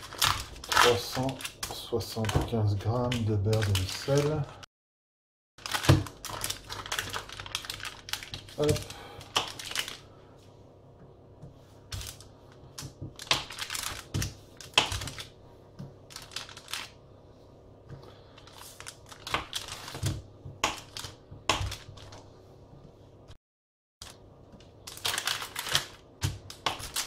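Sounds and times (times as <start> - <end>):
wrapper crinkling: 0.0 - 4.6, 5.6 - 10.1, 11.9 - 15.4, 16.0 - 17.0, 18.2 - 20.2, 24.0 - 27.0.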